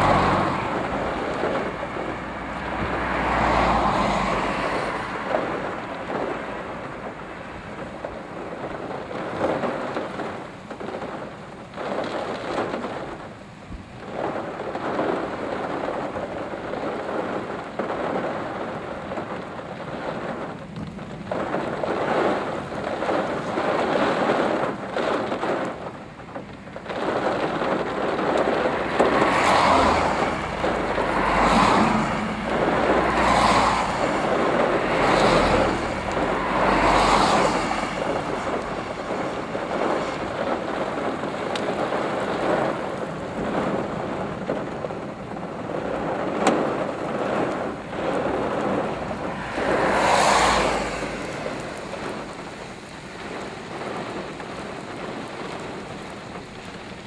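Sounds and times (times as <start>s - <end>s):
heavy rain beating on a car: 0.0s - 57.0s
low rumble: 27.7s - 42.7s.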